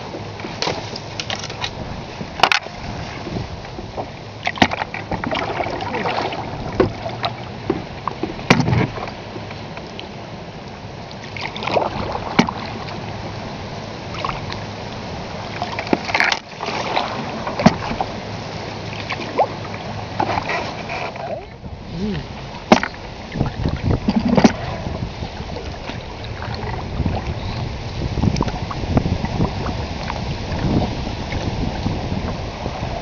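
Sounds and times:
paddle strokes: 0:00.0 - 0:33.0
water washing along hull: 0:00.0 - 0:33.0.

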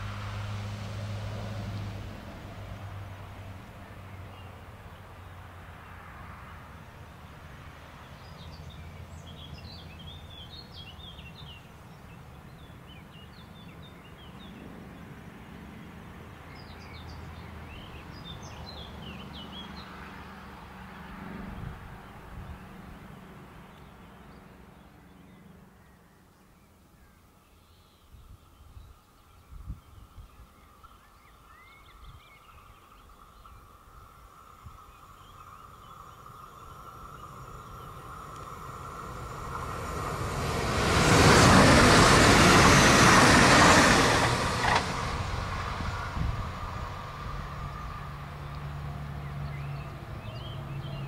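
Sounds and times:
songbirds chirping: 0:02.8 - 0:46.3, 0:47.2 - 0:51.0
diesel engine humming: 0:35.3 - 0:51.0.

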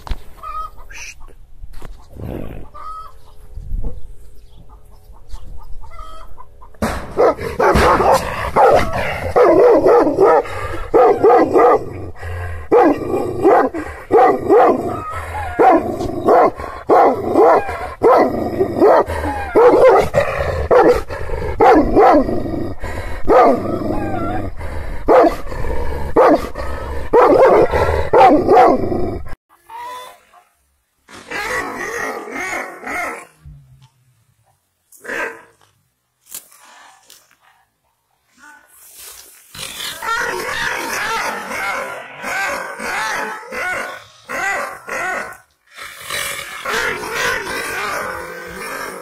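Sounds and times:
dog barking angrily: 0:07.1 - 0:22.5, 0:23.2 - 0:24.2, 0:25.0 - 0:25.5, 0:26.1 - 0:29.0, 0:40.0 - 0:45.4, 0:46.6 - 0:48.3.

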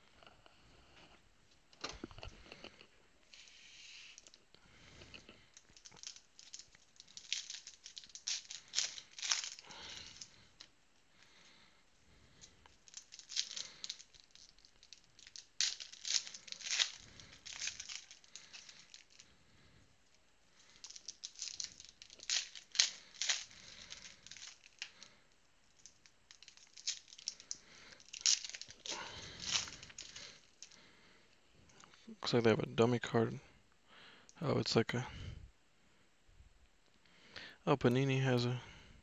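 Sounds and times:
wrappers crinkling and tearing: 0:05.5 - 0:11.6, 0:12.3 - 0:19.3, 0:20.6 - 0:30.9.

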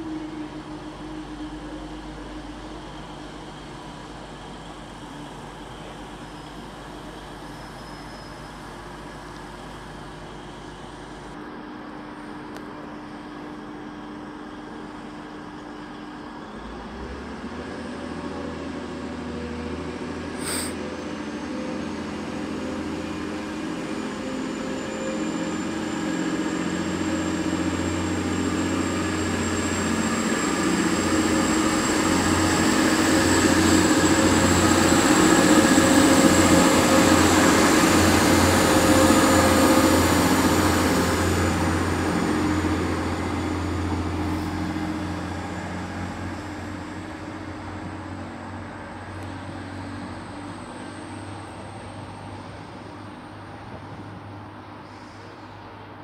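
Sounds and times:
diesel train engine drone: 0:00.0 - 0:56.0
thin high whine: 0:20.4 - 0:20.9
train wheel noise: 0:20.4 - 0:56.0.

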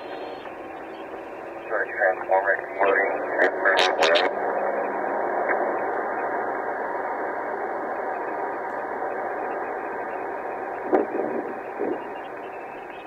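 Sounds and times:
radio static hiss: 0:00.0 - 0:13.0
brief static crackles: 0:09.6 - 0:13.0.

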